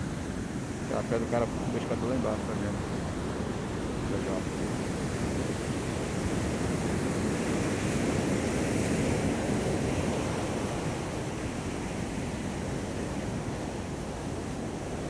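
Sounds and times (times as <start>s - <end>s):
ocean surf breaking on beach: 0.0s - 15.0s.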